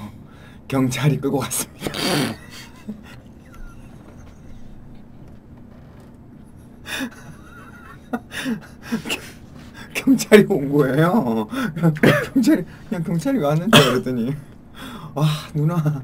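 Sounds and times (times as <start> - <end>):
women laughing breathily: 1.9 - 4.8, 6.8 - 9.4.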